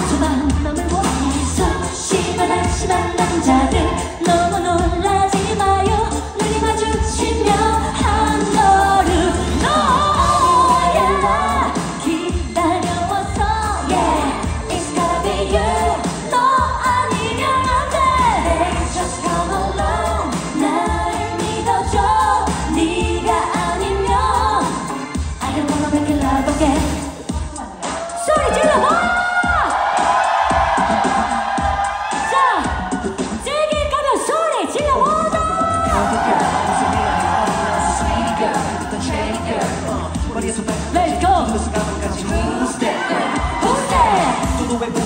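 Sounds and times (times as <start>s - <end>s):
woman singing into microphone: 0.0s - 29.7s
amplified backing track with bass beat: 0.0s - 34.0s, 34.8s - 42.8s.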